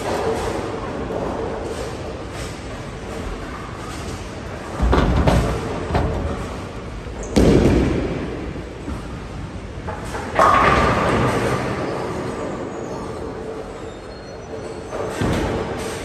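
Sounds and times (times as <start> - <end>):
bowling pins crashing: 4.8 - 8.6.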